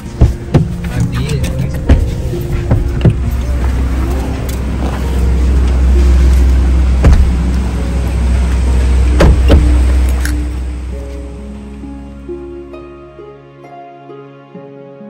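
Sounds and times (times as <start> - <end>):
car idling rumble: 0.0 - 13.2
faint music: 0.0 - 15.0
car door knocks: 0.1 - 3.7, 7.0 - 7.5, 9.2 - 10.0.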